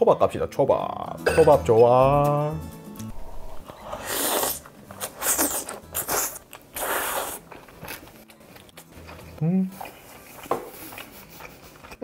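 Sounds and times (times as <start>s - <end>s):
close chewing of food: 3.7s - 12.0s.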